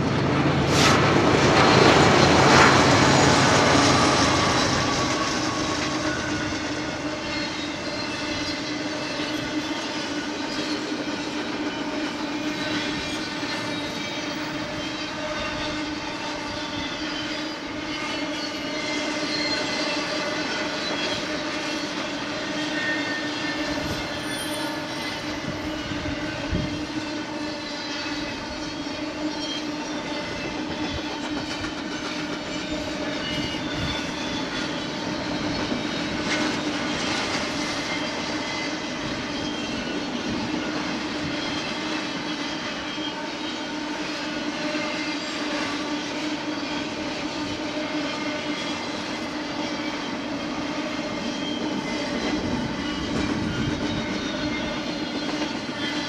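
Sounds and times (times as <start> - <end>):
train wheels rumbling and clattering: 0.0 - 56.0.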